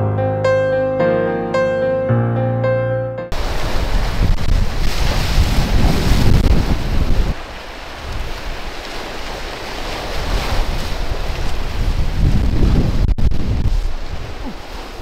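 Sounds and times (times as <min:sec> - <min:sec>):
sea surf breaking: 0:03.3 - 0:15.0
wind buffeting microphone: 0:03.3 - 0:15.0.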